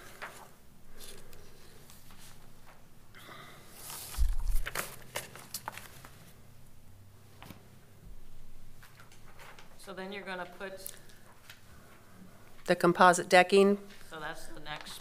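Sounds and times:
papers rustling at microphone: 3.8s - 6.4s, 8.8s - 9.9s.

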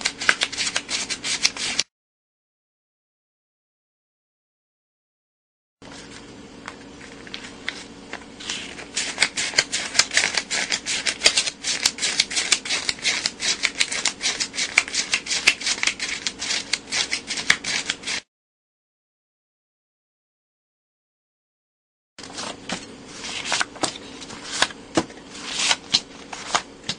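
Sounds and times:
banknotes rustling: 0.0s - 1.8s, 7.0s - 18.2s, 22.2s - 26.9s.

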